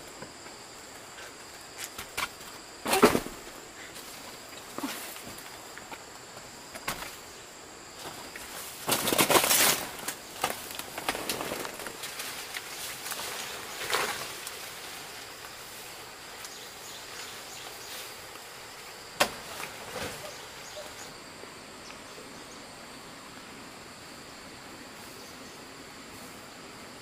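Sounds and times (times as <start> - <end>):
faint insect sound: 0.0 - 27.0
rustling or scraping: 8.0 - 16.6.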